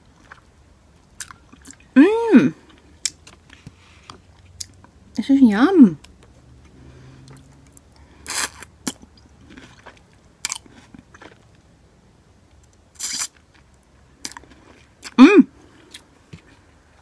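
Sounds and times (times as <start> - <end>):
chewing: 6.6 - 11.6
noodle slurps: 8.3 - 8.7.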